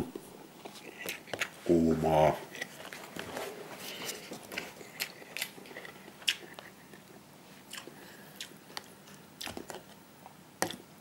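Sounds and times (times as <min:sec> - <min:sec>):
person chewing noodles: 0:03.9 - 0:10.0.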